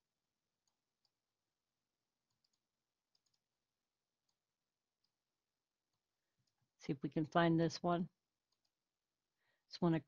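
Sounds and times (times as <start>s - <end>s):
computer mouse clicks: 2.2s - 3.5s, 8.5s - 8.8s.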